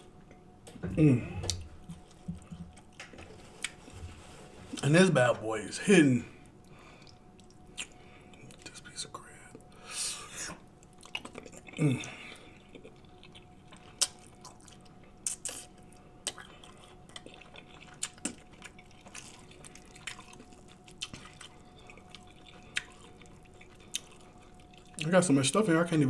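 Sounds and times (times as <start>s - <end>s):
faint steady hum: 0.0s - 26.0s
wet lip-smacks and chewing: 7.0s - 8.7s, 10.8s - 11.8s, 12.6s - 25.1s.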